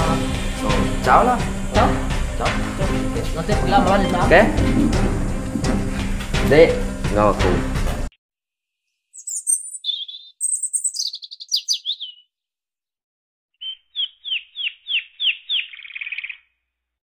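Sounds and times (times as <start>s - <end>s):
bird chirping and twittering: 9.1s - 12.3s, 13.6s - 16.6s
bird whistles ending in trill: 9.2s - 12.2s, 13.6s - 16.4s.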